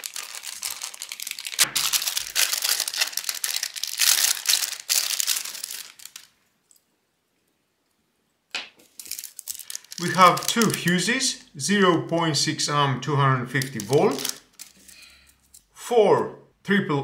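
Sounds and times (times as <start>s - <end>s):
plastic bags crinkling: 0.0s - 6.4s, 8.8s - 11.3s, 13.5s - 15.3s.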